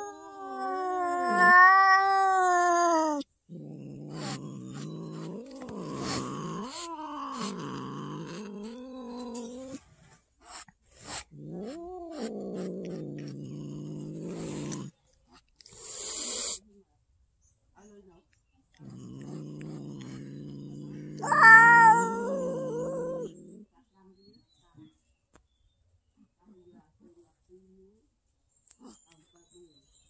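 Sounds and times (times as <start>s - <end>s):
cat yowling and growling: 0.0s - 9.8s, 11.0s - 14.9s, 19.0s - 23.6s.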